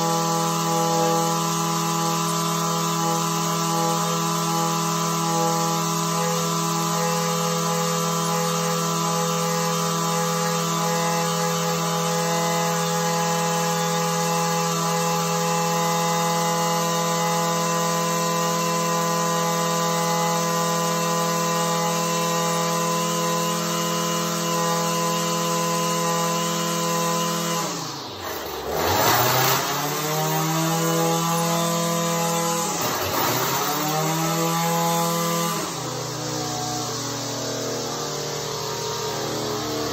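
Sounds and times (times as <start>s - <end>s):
string trimmer engine idling: 20.8s - 37.3s.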